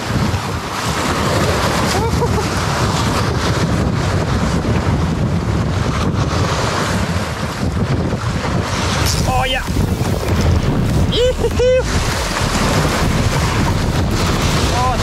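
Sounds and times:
sea waves breaking on rocks: 0.0 - 15.0
wind buffeting microphone: 0.0 - 15.0.

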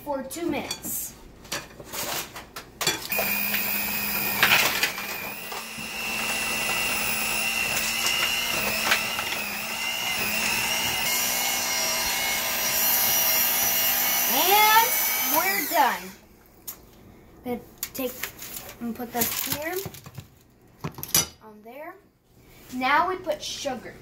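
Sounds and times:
electric hand mixer running: 3.1 - 16.2.

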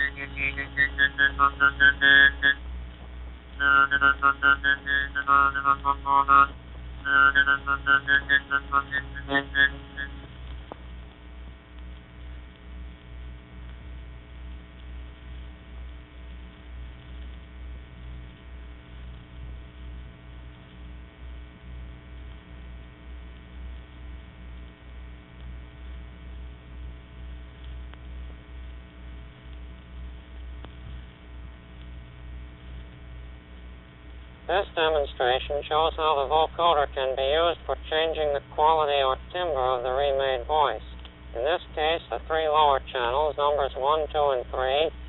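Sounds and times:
buzzy synthetic vocoder tone: 0.0 - 10.4
old recording surface noise: 0.0 - 22.6, 23.2 - 45.0
mains hum: 0.0 - 45.0.

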